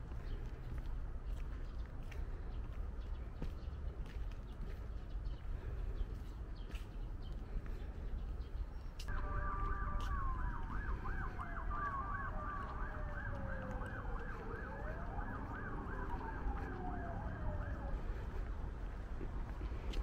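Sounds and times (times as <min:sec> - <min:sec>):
siren yelp: 0:09.0 - 0:18.6
siren wail: 0:09.1 - 0:18.6.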